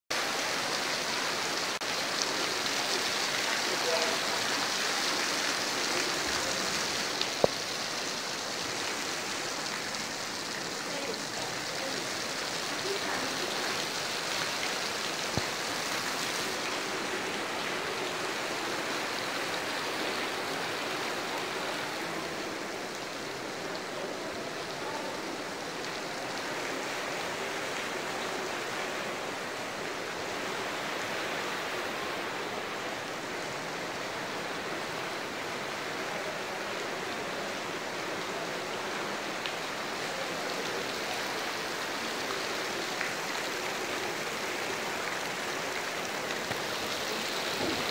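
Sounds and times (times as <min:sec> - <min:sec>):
heavy rain on lawn and shrubs: 0:00.1 - 0:47.9.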